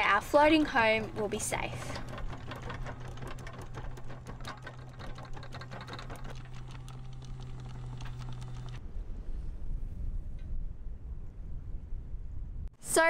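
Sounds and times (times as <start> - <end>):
anchor chain clattering: 0.0 - 8.8
windlass motor hum: 0.0 - 8.8.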